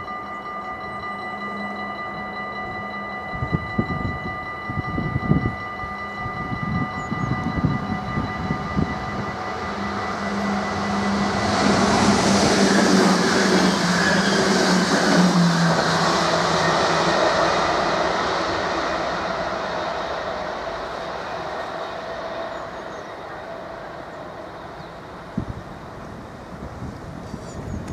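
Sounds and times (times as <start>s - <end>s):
level crossing warning bells: 0.0s - 26.7s
electric train passing: 0.0s - 27.9s.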